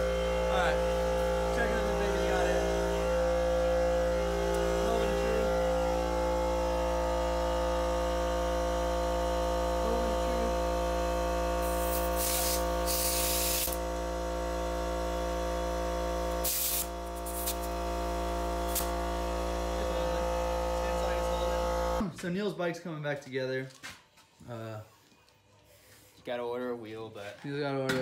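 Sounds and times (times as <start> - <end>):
steady hum: 0.0 - 22.2
compressed air hissing: 11.6 - 13.8, 16.4 - 17.7.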